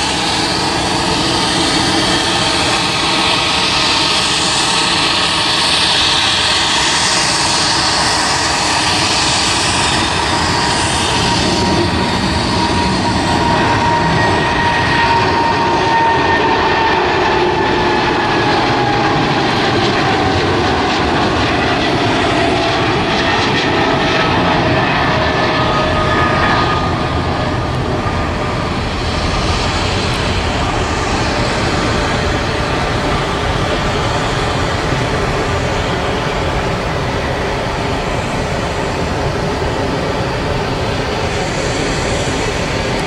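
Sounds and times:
jet engines roaring at takeoff: 0:00.0 - 0:43.0.

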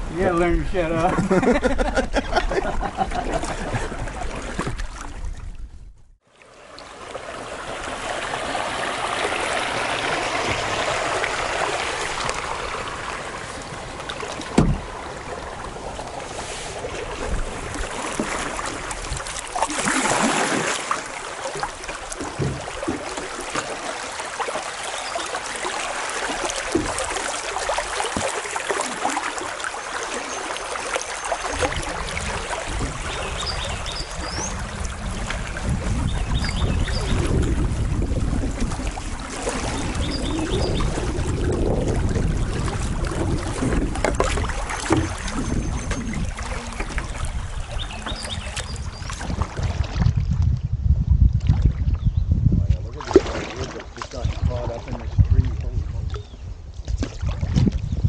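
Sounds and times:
river water rushing: 0:06.3 - 0:36.1
dull knocks on canoe: 0:14.4 - 0:14.9, 0:22.2 - 0:23.7, 0:43.1 - 0:47.1.

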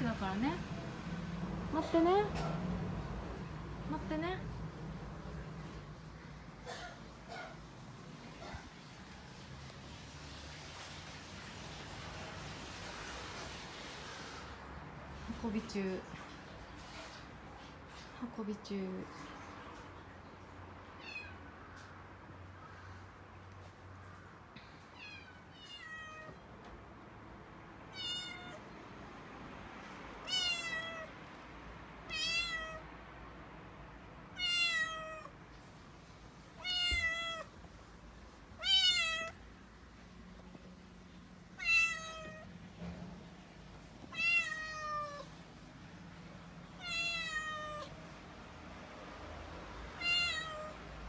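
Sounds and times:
kitten meowing: 0:25.0 - 0:26.4, 0:27.9 - 0:28.6, 0:30.2 - 0:31.1, 0:32.1 - 0:32.8, 0:34.4 - 0:35.3, 0:36.6 - 0:37.5, 0:38.6 - 0:39.4, 0:41.6 - 0:42.5, 0:44.1 - 0:45.3, 0:46.8 - 0:47.9, 0:50.0 - 0:50.8.

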